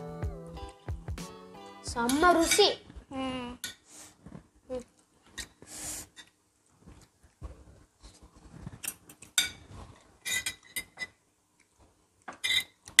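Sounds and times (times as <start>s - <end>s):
cutlery clinking against dishes: 2.1s - 2.7s, 8.8s - 11.2s, 12.3s - 13.0s.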